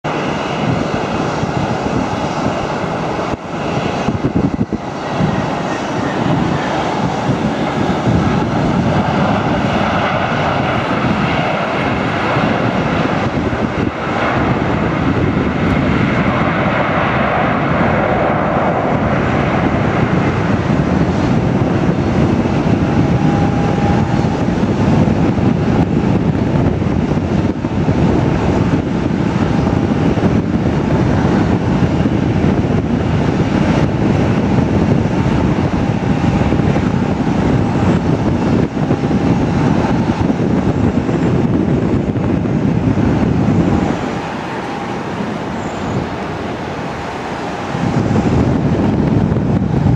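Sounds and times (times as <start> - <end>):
jet engines idling: 0.0 - 49.9
faint high whine: 43.8 - 47.8.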